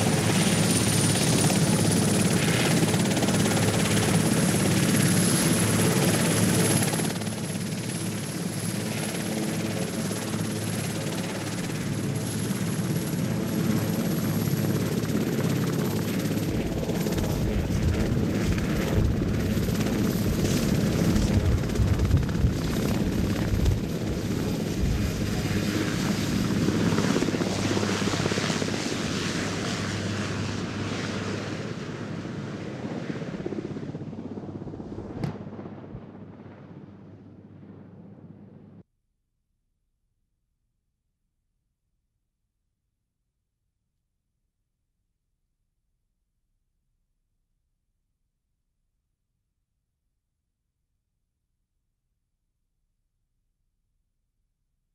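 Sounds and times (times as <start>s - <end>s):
helicopter rotor chop: 0.0s - 31.0s
helicopter engine whine: 0.0s - 38.8s.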